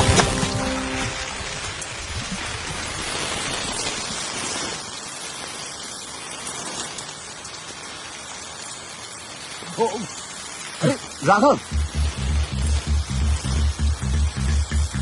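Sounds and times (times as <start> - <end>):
low rumble: 11.7 - 15.0.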